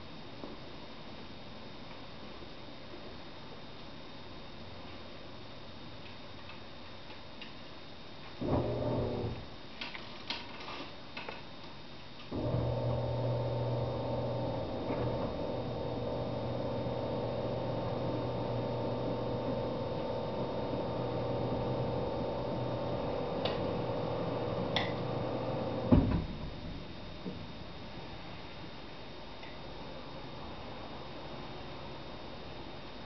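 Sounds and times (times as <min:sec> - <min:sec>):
electric motor hum: 0:08.4 - 0:09.4, 0:12.3 - 0:26.0.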